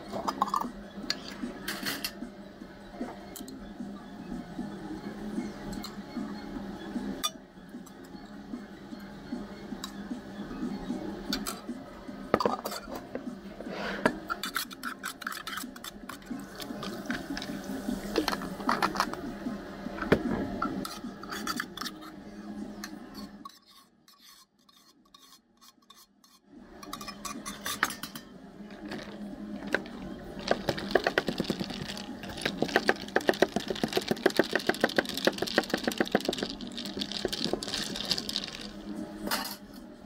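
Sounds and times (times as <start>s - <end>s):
utensils and dishes clinking: 0.0s - 2.2s, 11.2s - 11.7s, 12.3s - 13.2s, 13.9s - 19.2s, 20.0s - 22.2s, 22.8s - 39.9s.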